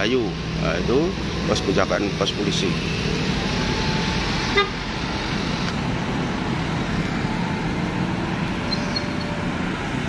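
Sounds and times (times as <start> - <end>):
road traffic: 0.0 - 10.0
car horn toot: 4.5 - 4.8.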